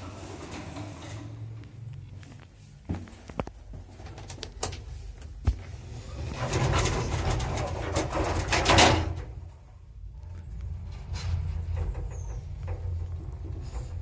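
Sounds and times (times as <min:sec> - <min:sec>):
lift doors rumbling shut: 0:06.1 - 0:09.5, 0:10.8 - 0:14.0.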